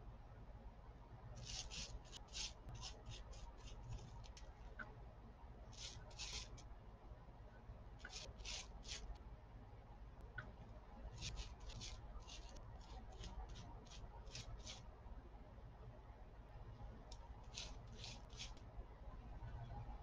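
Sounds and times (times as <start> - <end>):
foam brush rubbing bubble wrap: 1.4 - 4.3, 5.8 - 6.6, 8.1 - 9.1, 11.2 - 14.8, 17.5 - 18.6.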